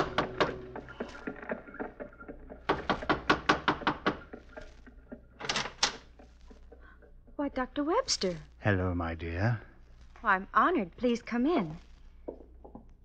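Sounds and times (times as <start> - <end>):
knuckles knocking on wooden door: 2.7 - 4.3.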